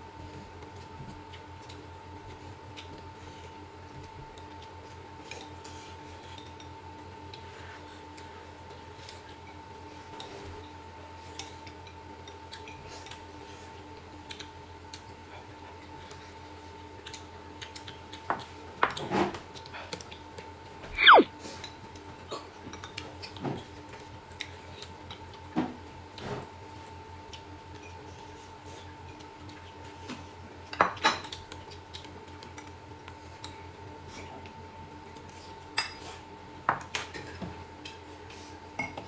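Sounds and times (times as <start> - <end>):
whistle-like falling tone: 20.9 - 21.3.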